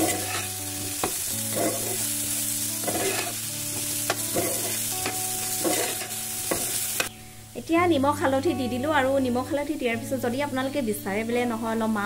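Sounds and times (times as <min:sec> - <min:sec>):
spoon scraping pan: 0:00.0 - 0:02.1, 0:02.8 - 0:07.1
food sizzling in oil: 0:00.0 - 0:08.8.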